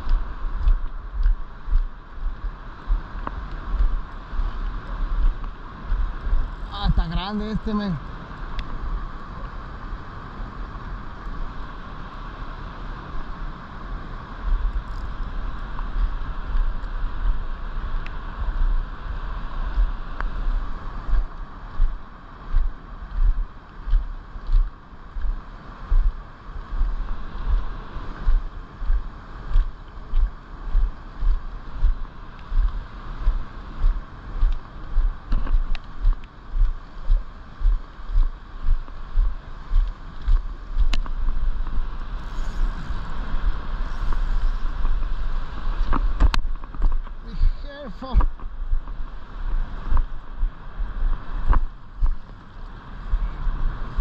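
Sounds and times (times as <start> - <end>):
wind buffeting microphone: 0.0 - 54.0
river water rushing: 36.3 - 53.9.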